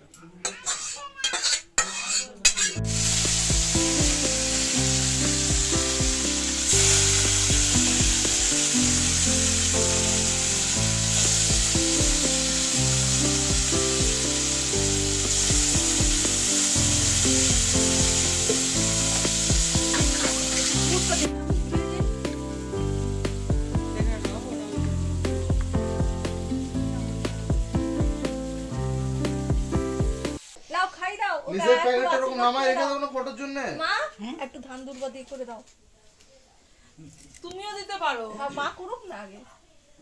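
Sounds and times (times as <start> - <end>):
metal utensil scraping metal pot: 0.4 - 2.9
food frying in hot oil: 1.4 - 30.6
background music: 2.8 - 30.4.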